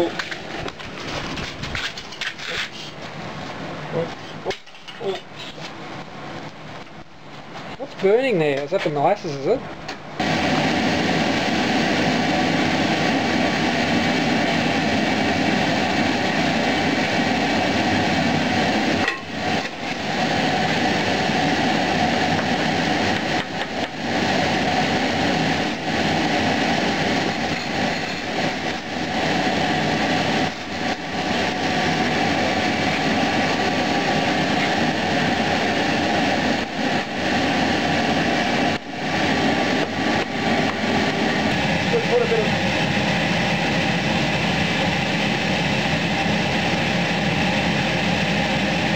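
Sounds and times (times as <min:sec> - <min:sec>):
furnace burner and blower roaring: 0:00.0 - 0:48.9.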